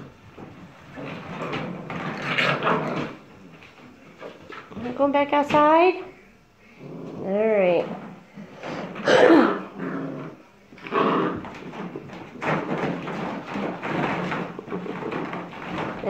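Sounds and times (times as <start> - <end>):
plastic balls clattering: 11.4 - 16.0.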